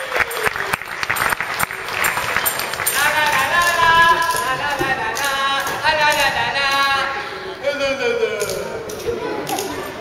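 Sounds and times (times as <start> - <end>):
applause: 0.0 - 3.6.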